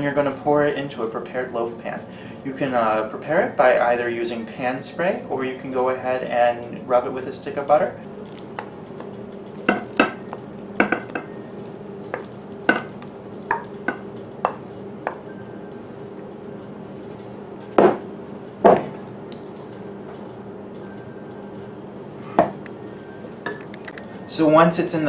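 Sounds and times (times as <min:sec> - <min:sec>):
steady low hum: 0:00.0 - 0:25.0
spoon knocking against glass: 0:09.7 - 0:11.3, 0:12.1 - 0:15.2.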